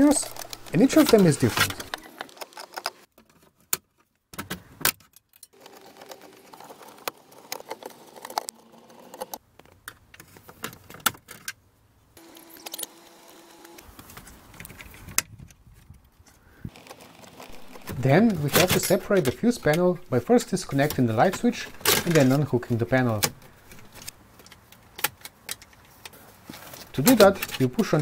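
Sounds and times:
screwdriver and screws rattling: 0:17.5 - 0:19.8.

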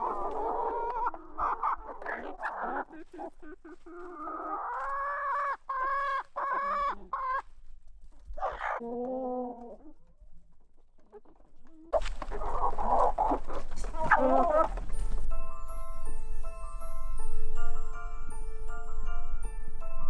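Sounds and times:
chickens clucking: 0:00.0 - 0:15.3.

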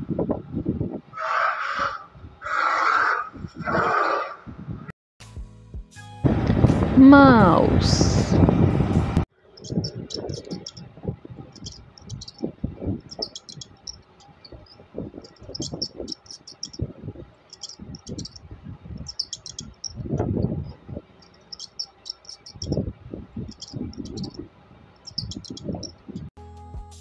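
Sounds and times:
rustling scrabbles: 0:09.6 - 0:10.8, 0:11.5 - 0:16.8, 0:17.4 - 0:18.4, 0:19.0 - 0:20.5, 0:21.2 - 0:22.8
mice squeaking: 0:09.6 - 0:24.4, 0:25.0 - 0:26.3.

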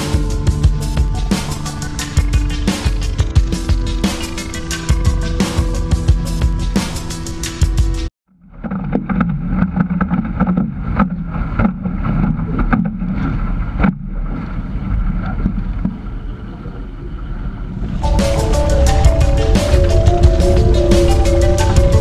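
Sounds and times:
background music: 0:00.0 - 0:08.1, 0:18.0 - 0:22.0
water slapping against hull: 0:08.6 - 0:16.2
wind buffeting microphone: 0:10.2 - 0:22.0.

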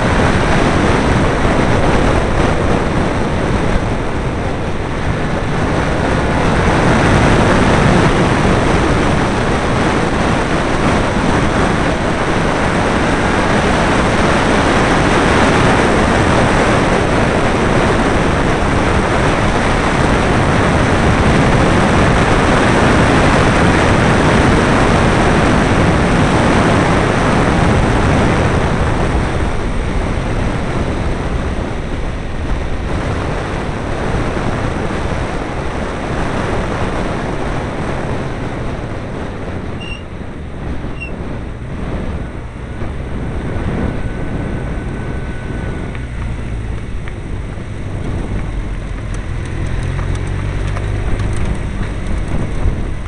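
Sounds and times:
car engine: 0:00.0 - 0:53.0
wind rushing over microphone: 0:00.0 - 0:53.0.

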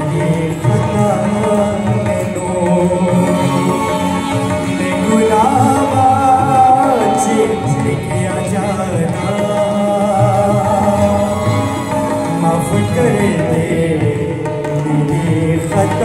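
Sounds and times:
harmonium chords: 0:00.0 - 0:16.0
person singing: 0:00.0 - 0:16.0.

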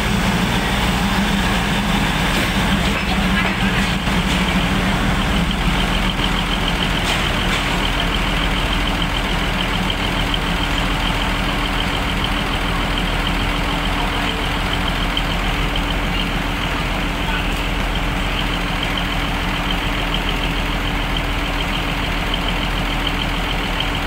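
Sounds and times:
diesel engines idling: 0:00.0 - 0:24.0.

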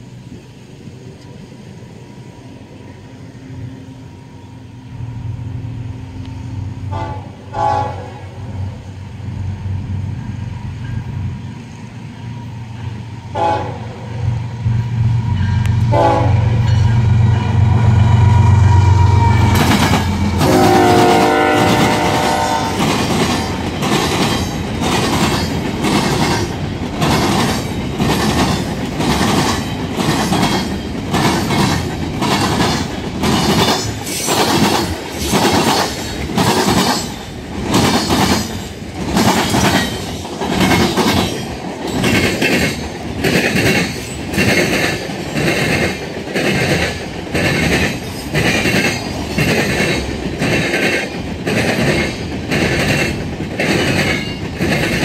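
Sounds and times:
train wheels clacking over rail joints: 0:19.0 - 0:55.0.

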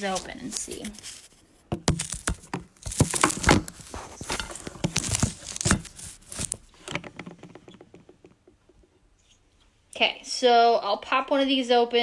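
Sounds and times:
plastic pots clicking and crackling: 0:00.0 - 0:09.0.

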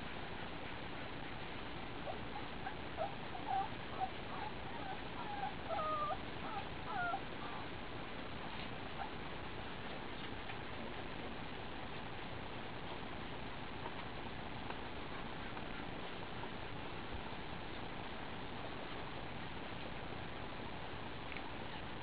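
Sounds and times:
puppies whimpering: 0:02.0 - 0:07.7.

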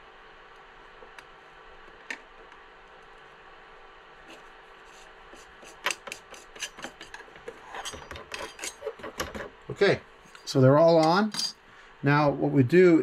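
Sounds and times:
wheel sharp clicks and scrapes: 0:05.6 - 0:09.2.

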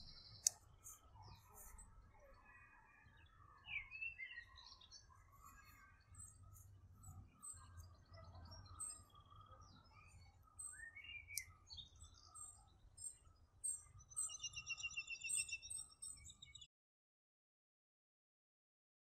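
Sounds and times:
bird trill: 0:00.0 - 0:16.7
birds chirping: 0:00.0 - 0:16.7.

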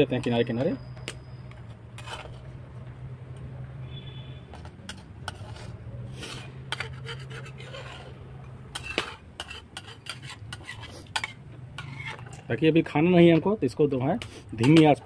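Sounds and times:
spoon scraping a pot: 0:01.6 - 0:02.5, 0:04.9 - 0:12.4.

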